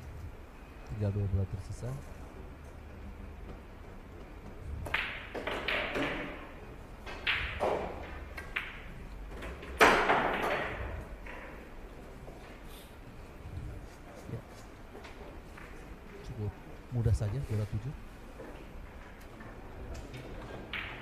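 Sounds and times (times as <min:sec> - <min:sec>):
pool balls clicking together: 0:04.2 - 0:11.8, 0:18.6 - 0:21.0
ball dropping into pocket: 0:04.8 - 0:11.6, 0:19.4 - 0:21.0
cue striking ball: 0:04.8 - 0:11.7, 0:20.0 - 0:21.0.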